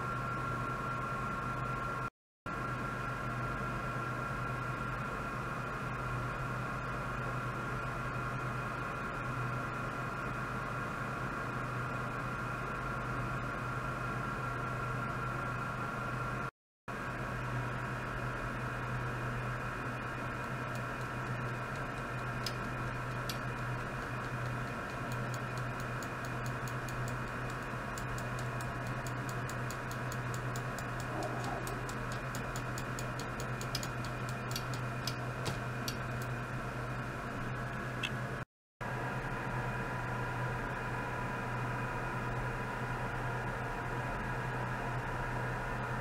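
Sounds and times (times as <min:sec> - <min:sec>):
low electrical hum: 0:00.0 - 0:46.0
irregular sharp ticks: 0:20.6 - 0:36.4.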